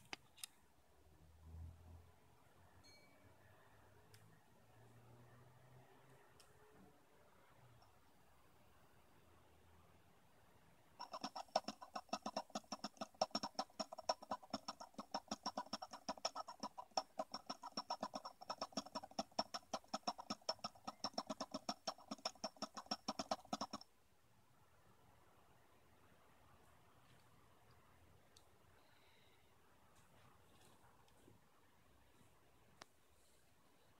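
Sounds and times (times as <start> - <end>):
rapid even clicking of spinning wheel: 11.0 - 23.9.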